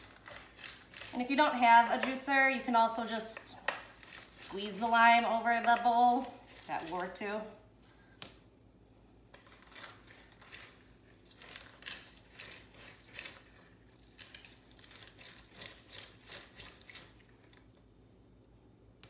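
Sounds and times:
lime scraping on citrus juicer: 0.0s - 2.1s, 3.6s - 5.0s, 9.3s - 17.4s.

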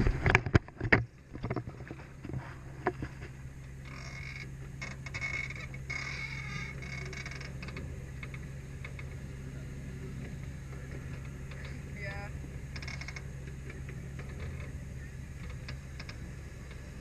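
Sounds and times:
ride train hum: 0.0s - 17.0s
rattling squeal: 3.9s - 7.6s.

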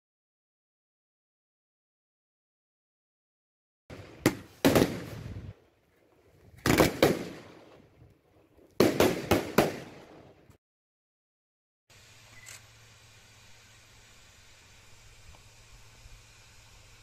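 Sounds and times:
loud explosive bangs with echo: 8.8s - 10.2s.

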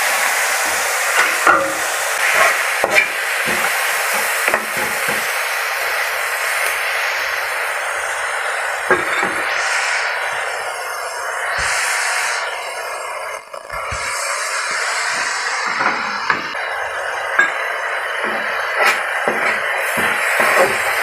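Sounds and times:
vegetables sizzling in oil: 0.0s - 21.0s
spatula scraping pan: 18.2s - 21.0s.

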